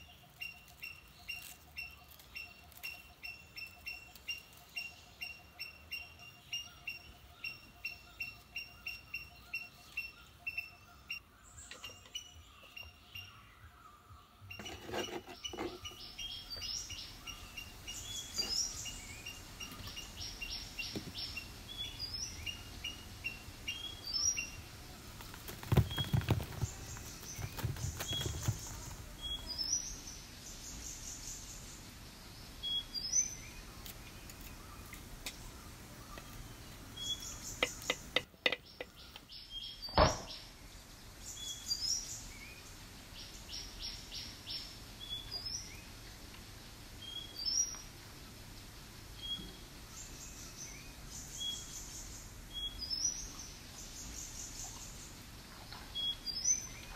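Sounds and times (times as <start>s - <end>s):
small birds chirping: 0.0s - 56.9s
sharp knock: 39.9s - 40.4s.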